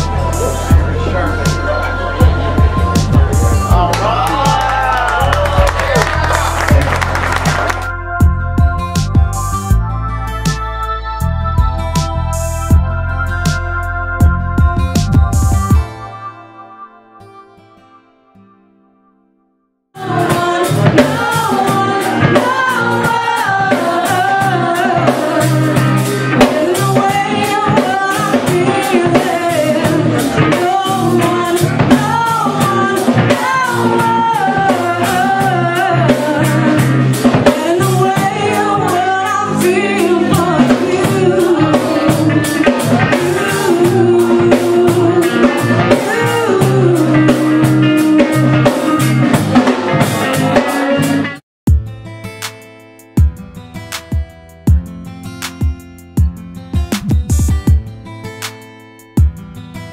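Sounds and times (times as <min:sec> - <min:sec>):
drums: 0:00.0 - 0:16.0, 0:20.0 - 0:59.9
bass guitar: 0:00.0 - 0:16.4, 0:20.0 - 0:52.5, 0:53.2 - 0:58.3
woman singing: 0:20.0 - 0:49.3
electric guitar: 0:20.0 - 0:51.4.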